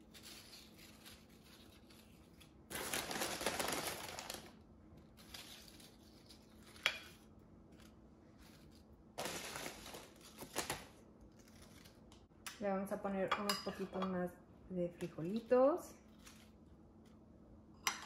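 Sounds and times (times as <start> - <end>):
chip bag crinkling: 0.0 - 6.8, 8.4 - 12.0
chips rustling on a plate: 0.0 - 12.0, 15.4 - 16.7.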